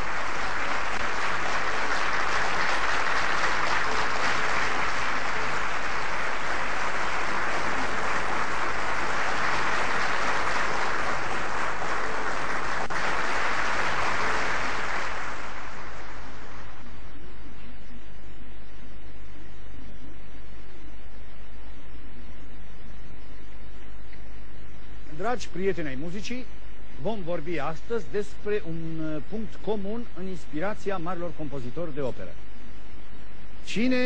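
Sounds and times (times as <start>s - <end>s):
audience applauding: 0.0s - 16.6s
low electrical hum: 0.0s - 34.0s.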